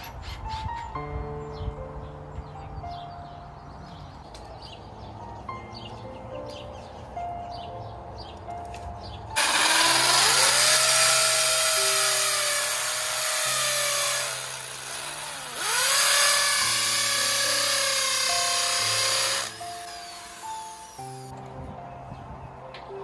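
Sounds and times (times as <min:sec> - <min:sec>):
cordless drill motor whine: 0:09.4 - 0:21.3.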